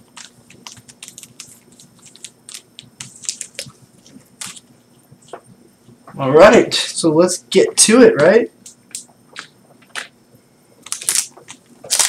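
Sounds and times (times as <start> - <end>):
foil packs crinkling: 0.0 - 4.7, 10.8 - 12.0.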